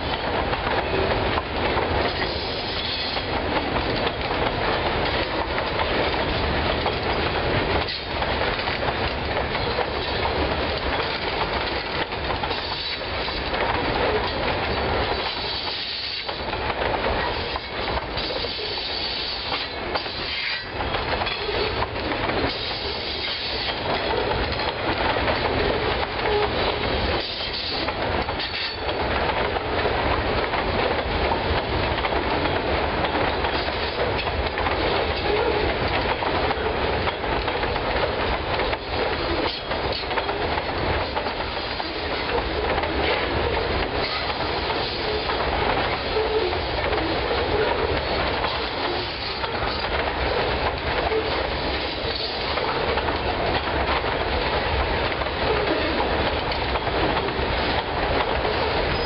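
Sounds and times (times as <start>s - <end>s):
train wheels clicking over rail joints: 0.0s - 59.0s
wheel flange squeal: 2.2s - 3.3s.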